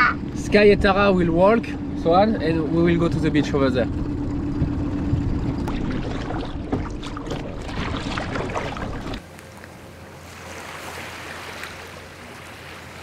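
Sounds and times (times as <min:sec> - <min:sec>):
outboard motor running: 0:00.0 - 0:13.0
water splashing against hull: 0:02.6 - 0:13.0
small waves on a beach: 0:05.7 - 0:13.0.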